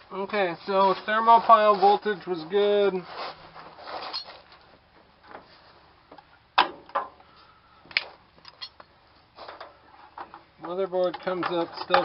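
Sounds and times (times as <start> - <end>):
tools and parts clicking: 8.4 - 8.9.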